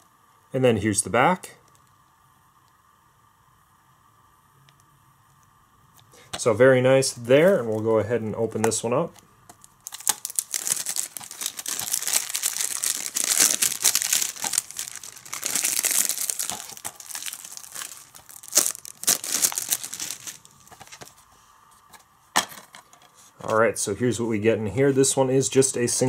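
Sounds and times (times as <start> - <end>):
plastic wrap tearing and crinkling: 9.6 - 21.2.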